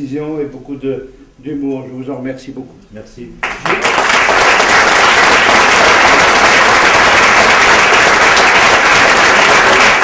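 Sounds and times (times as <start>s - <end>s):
audience applauding: 3.4s - 10.0s.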